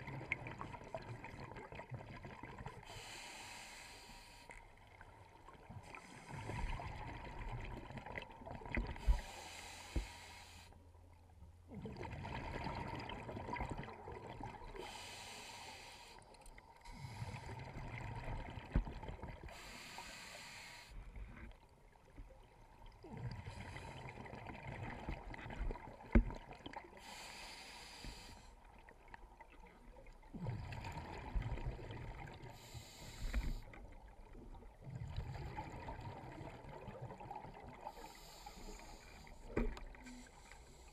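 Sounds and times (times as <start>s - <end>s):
diver breathing through regulator: 2.8s - 4.6s, 9.0s - 10.8s, 14.8s - 17.7s, 19.4s - 21.4s, 27.0s - 28.6s, 32.5s - 33.8s, 37.8s - 40.9s.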